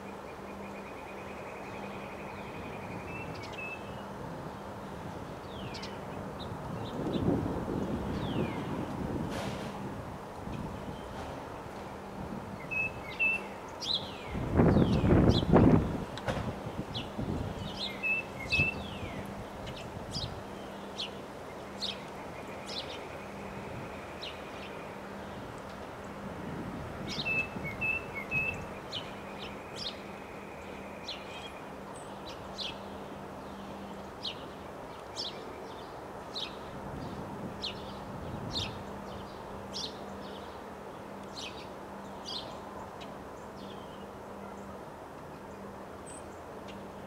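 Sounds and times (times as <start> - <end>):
wind rushing in gusts: 2.5 - 30.2, 36.0 - 43.4
small birds chirping: 12.6 - 15.8, 16.9 - 26.2.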